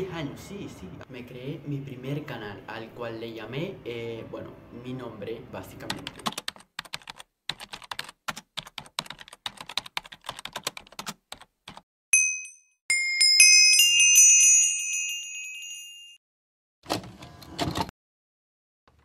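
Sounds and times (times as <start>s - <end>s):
bright overlapping chime notes: 12.2s - 16.2s
short high ding: 12.2s - 16.2s.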